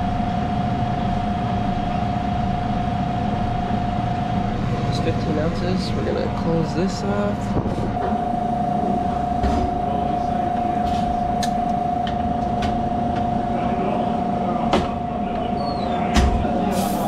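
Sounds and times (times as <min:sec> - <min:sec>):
refrigeration system hum: 0:00.0 - 0:17.0.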